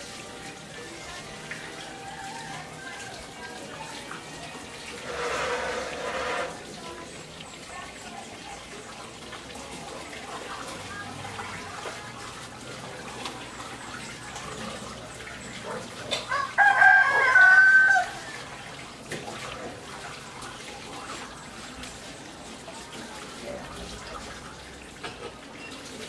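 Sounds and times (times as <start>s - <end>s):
rooster crowing: 16.2s - 18.5s.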